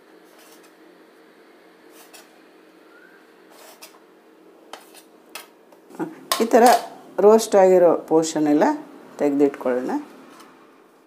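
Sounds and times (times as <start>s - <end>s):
knife scraping bread crust: 0.2s - 0.8s, 1.8s - 2.4s, 3.5s - 4.0s, 4.7s - 5.1s.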